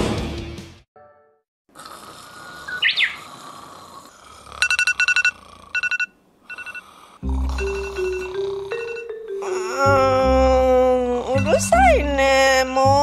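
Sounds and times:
music: 0.0 - 1.4, 7.2 - 13.0
rising chirp: 2.7 - 3.3, 7.5 - 9.4
phone alarm beeps: 4.6 - 6.9, 7.5 - 9.3.

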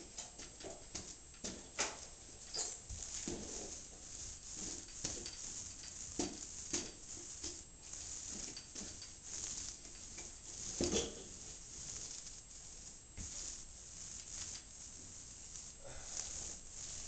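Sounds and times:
paint roller scratchy strokes: 0.1 - 17.0
paint roller knocks: 2.9 - 12.2.

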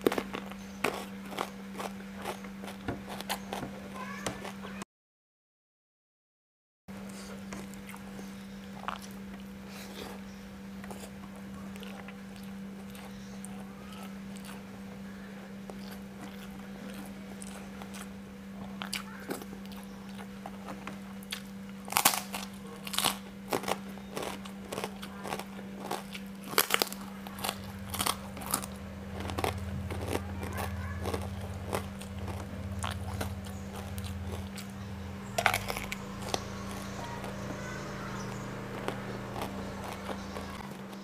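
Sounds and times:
soft chewing: 0.0 - 4.8, 7.0 - 41.0
steady low hum: 0.0 - 4.8, 6.9 - 41.0
crisp cracker crunches: 20.5 - 34.7.

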